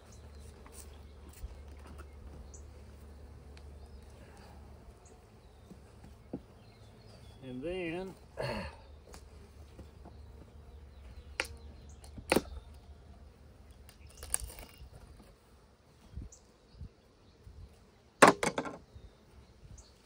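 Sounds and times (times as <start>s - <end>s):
bees buzzing: 0.0s - 18.2s
wooden box knocking and scraping: 18.2s - 18.8s.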